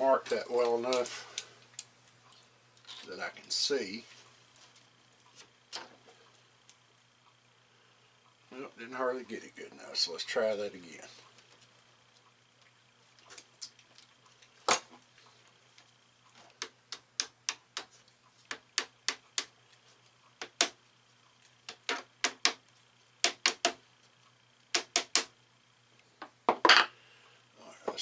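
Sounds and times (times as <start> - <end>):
small hammer tapping metal: 23.2 - 23.8, 24.7 - 25.3.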